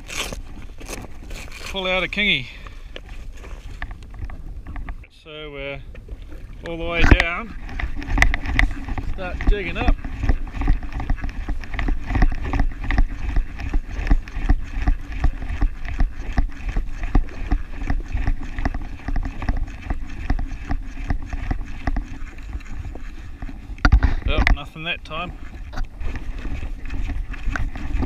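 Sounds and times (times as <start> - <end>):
choppy water: 0.0 - 28.0
wind on microphone: 0.0 - 28.0.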